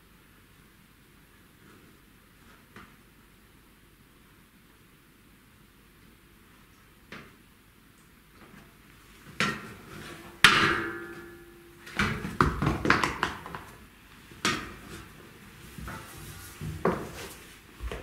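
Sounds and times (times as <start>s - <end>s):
metal ladder ringing: 10.4s - 11.8s
heels knocking on metal ladder steps: 17.8s - 18.0s.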